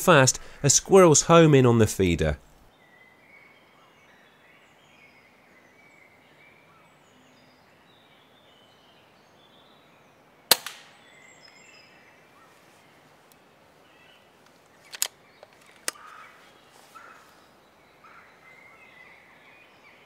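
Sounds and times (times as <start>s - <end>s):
faint birdsong: 0.0s - 20.0s
air rifle shot: 10.5s - 11.0s.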